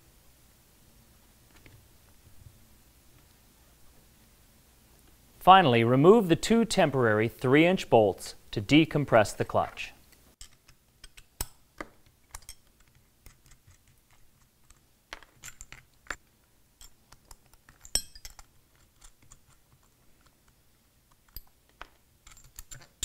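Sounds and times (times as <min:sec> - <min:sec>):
metallic clicks and clinks: 0:10.4 - 0:11.6, 0:12.3 - 0:16.2, 0:16.8 - 0:20.4, 0:21.1 - 0:23.0.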